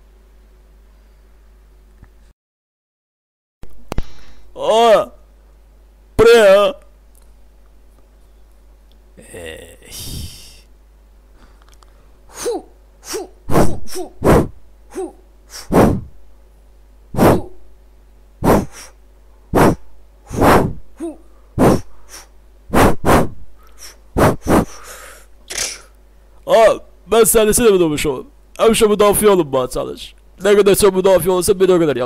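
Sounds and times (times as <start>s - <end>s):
man exhaling forcefully: 9.2s - 10.6s, 12.3s - 16.1s, 17.2s - 17.6s, 18.4s - 19.0s, 19.6s - 25.9s.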